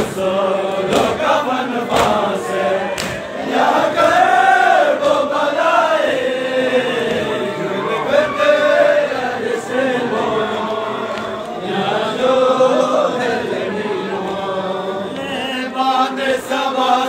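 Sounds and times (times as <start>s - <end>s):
men chanting a lament: 0.0s - 17.0s.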